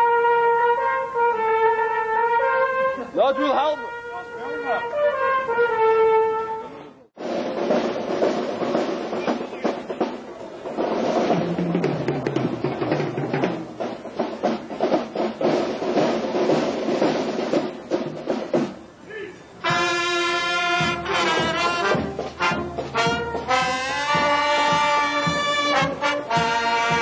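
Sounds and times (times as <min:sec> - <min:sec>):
busy drum passage: 0:01.2 - 0:27.0
brass instruments sliding down: 0:19.6 - 0:27.0.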